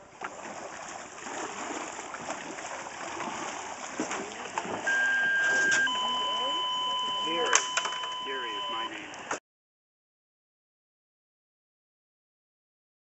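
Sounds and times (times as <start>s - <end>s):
river water rushing and splashing: 0.0s - 5.8s
steady electronic beep: 4.9s - 9.0s.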